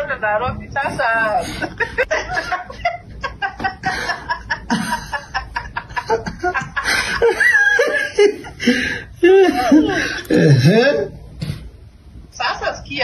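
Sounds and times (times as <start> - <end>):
woman laughing over phone call: 1.2 - 8.6, 9.2 - 10.3.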